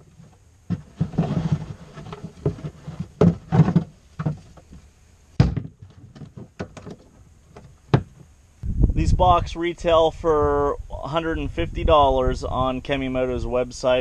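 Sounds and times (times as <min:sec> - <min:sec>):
rustling: 0:00.0 - 0:08.3
hollow plastic knocks: 0:00.7 - 0:04.8, 0:05.4 - 0:08.2.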